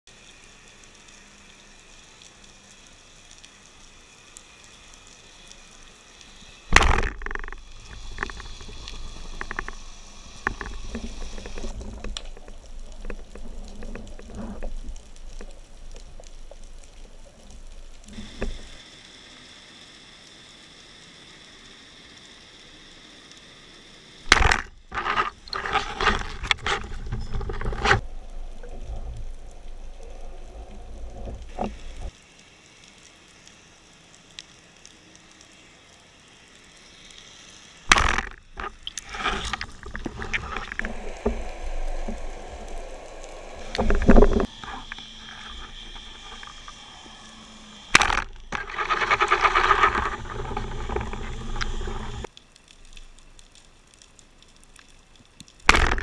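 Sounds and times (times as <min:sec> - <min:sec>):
faint underwater hiss: 0:00.1 - 0:24.4, 0:28.0 - 0:54.4
speargun firing crack: 0:06.7 - 0:07.4, 0:24.3 - 0:24.7, 0:37.9 - 0:38.4
speargun handling knocks and scraping: 0:48.0 - 0:50.2.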